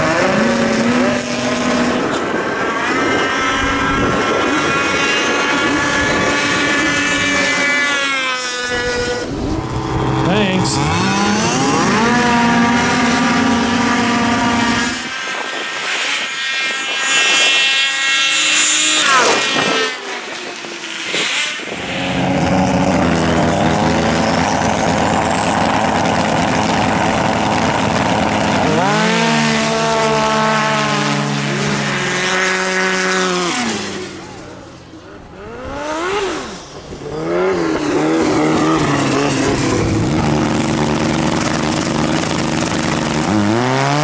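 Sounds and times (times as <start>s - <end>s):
snowmobile engines at full throttle: 0.0s - 44.0s
high whine rising in pitch: 8.6s - 35.8s.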